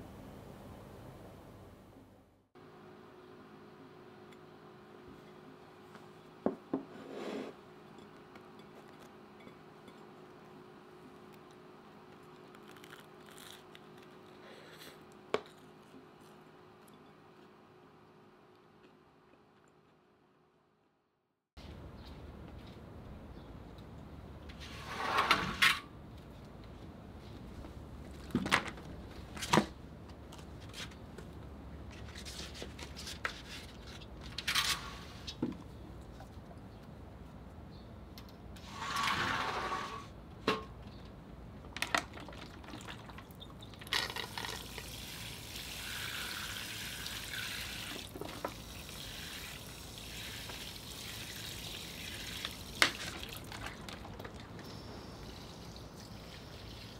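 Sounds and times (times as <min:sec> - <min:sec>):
faint crunching and chewing: 0:11.0 - 0:17.6.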